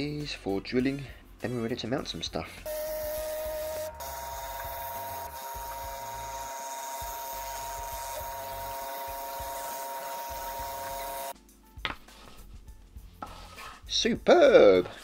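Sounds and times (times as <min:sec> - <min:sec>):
scroll saw cutting plywood: 0:02.7 - 0:11.3.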